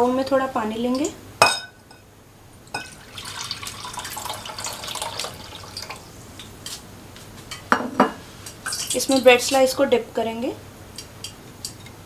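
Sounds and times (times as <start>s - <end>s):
water pouring into a glass bowl: 2.7s - 6.1s.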